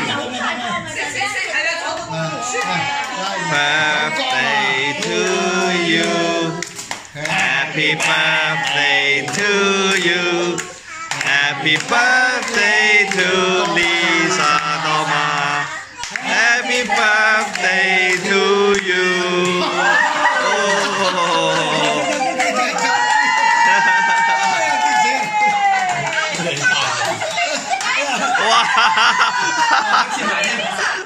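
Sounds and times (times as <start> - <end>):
adults and children singing: 2.1 - 24.4.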